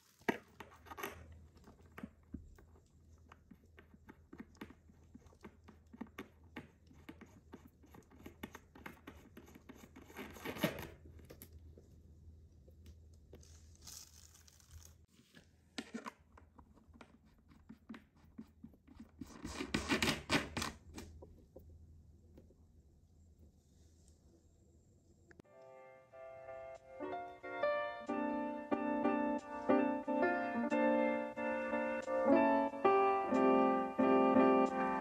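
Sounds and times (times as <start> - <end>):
rustling: 13.0 - 17.5.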